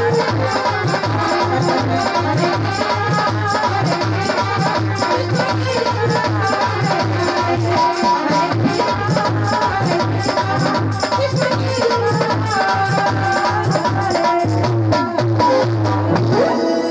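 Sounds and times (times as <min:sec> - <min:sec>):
keyboard melody: 0:00.0 - 0:05.9, 0:15.0 - 0:16.9
dholak drum beat: 0:00.0 - 0:16.9
jingling hand percussion: 0:00.0 - 0:16.9
woman singing into microphone: 0:00.0 - 0:16.9.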